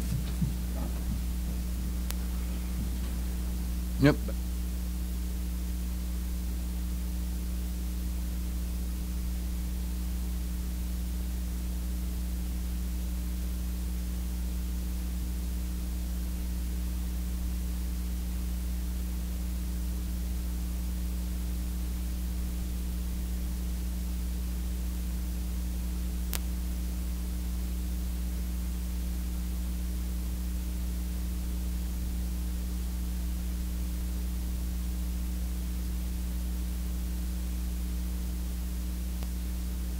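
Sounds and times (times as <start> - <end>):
electrical mains hum and hiss: 0.0 - 39.9
faint click: 1.6 - 3.2, 26.3 - 26.6, 39.2 - 39.4.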